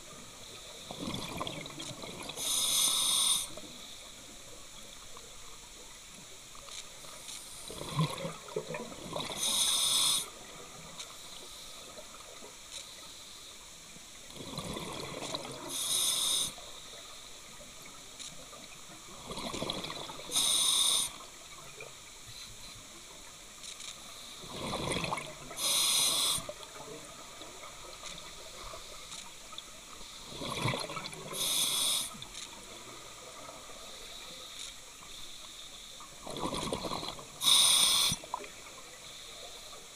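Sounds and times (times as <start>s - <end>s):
steady background hiss: 0.0s - 39.9s
scuba regulator breathing: 2.4s - 3.6s, 9.3s - 10.3s, 15.7s - 16.6s, 20.3s - 21.2s, 25.6s - 26.5s, 31.3s - 32.2s, 36.9s - 38.3s.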